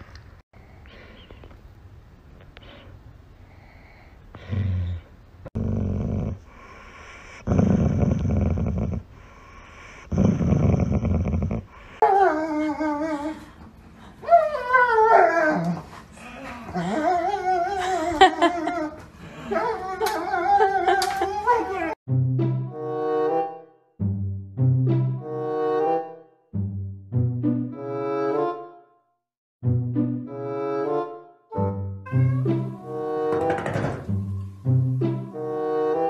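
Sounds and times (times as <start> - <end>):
dog growling: 5.6 - 6.5, 7.4 - 9.1, 10.1 - 11.7.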